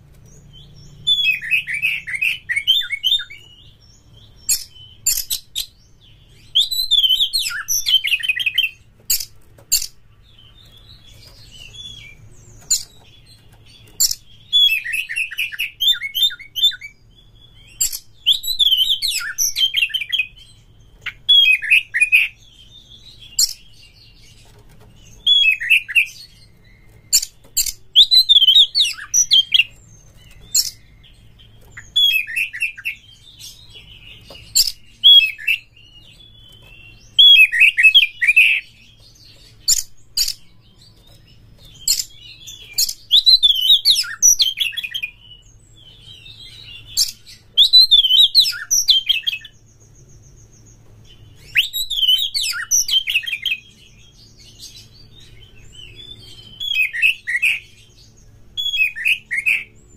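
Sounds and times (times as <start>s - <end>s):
bird singing whistles and warbles: 0.0s - 59.9s.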